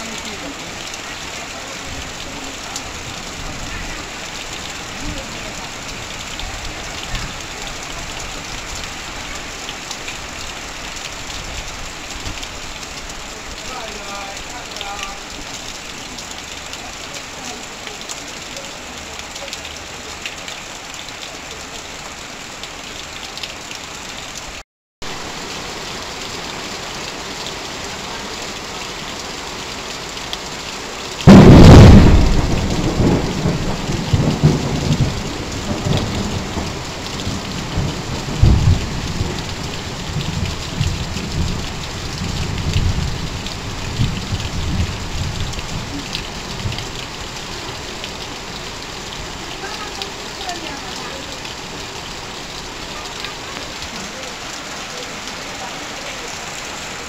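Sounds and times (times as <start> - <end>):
heavy rain on metal roof: 0.0 - 57.0
water streaming off roof: 0.0 - 57.0
thunderclap and rumbling: 31.2 - 47.0.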